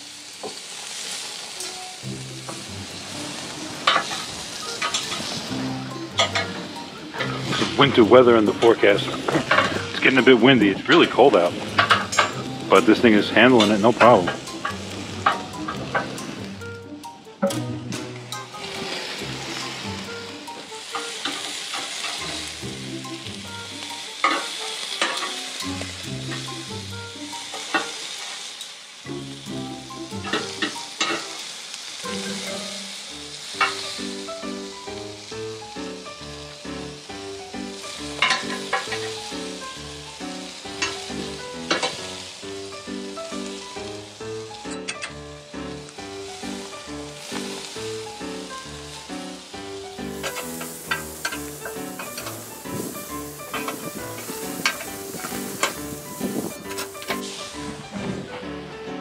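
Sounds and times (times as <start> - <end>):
food sizzling on grill: 0.0 - 58.2
soft background music: 0.1 - 59.0
metal tongs clicking on grate: 24.2 - 25.4, 38.2 - 39.0, 44.7 - 45.2, 50.2 - 52.5, 53.5 - 56.0.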